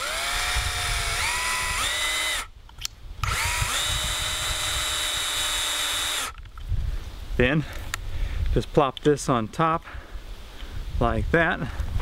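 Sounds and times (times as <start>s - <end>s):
electric drill motor whining: 0.0s - 2.5s, 3.2s - 6.4s.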